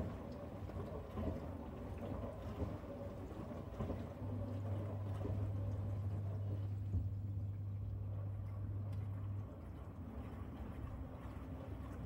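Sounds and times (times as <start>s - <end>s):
dishwasher water splashing: 0.0s - 6.6s.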